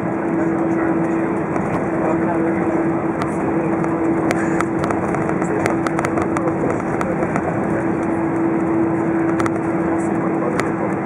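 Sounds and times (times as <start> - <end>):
airplane cabin engine roar: 0.0 - 11.0
steady hum: 0.0 - 11.0
sharp clicks: 1.4 - 11.0.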